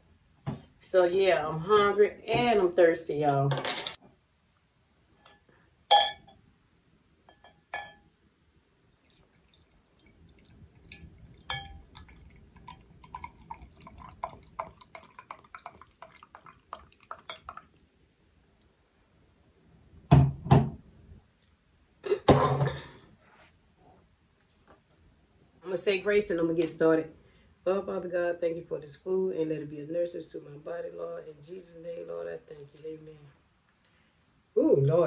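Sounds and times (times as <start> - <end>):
bottle clinking against glass: 5.9 - 6.4, 7.3 - 8.0, 11.5 - 11.8
drink pouring into glass: 9.0 - 17.8.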